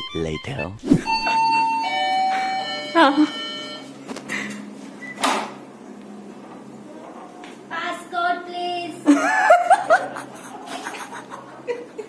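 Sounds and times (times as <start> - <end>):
voices laughing and exclaiming: 8.8 - 12.0.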